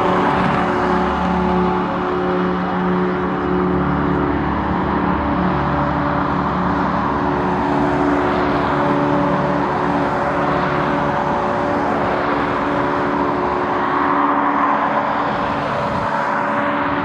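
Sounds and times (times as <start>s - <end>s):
jet engines running: 0.0s - 17.0s.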